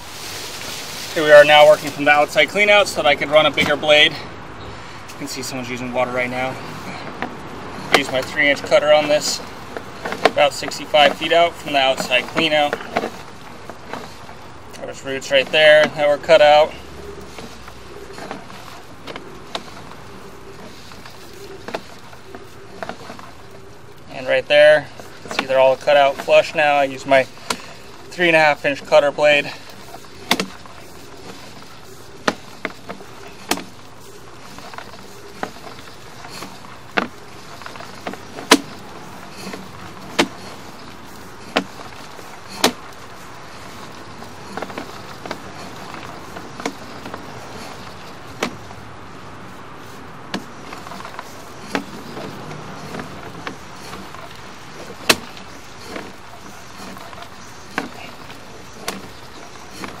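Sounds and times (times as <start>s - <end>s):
cable clicks and knocks: 29.7s - 48.8s, 49.8s - 60.0s.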